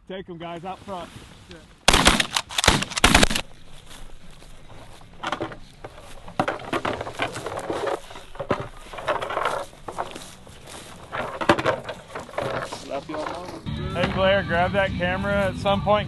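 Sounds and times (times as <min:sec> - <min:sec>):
footsteps crunching through stubble: 0:00.6 - 0:14.4
plastic decoys scraping and knocking: 0:03.4 - 0:13.7.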